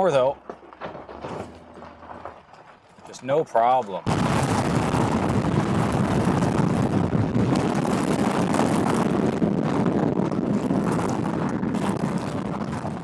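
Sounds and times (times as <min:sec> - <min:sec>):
car rumbling over gravel: 0:00.0 - 0:13.0
wind on microphone: 0:04.1 - 0:13.0.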